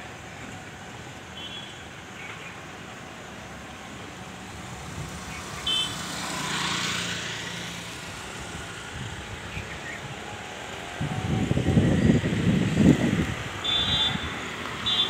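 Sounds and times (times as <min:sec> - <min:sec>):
vehicle passing: 0:04.3 - 0:14.9.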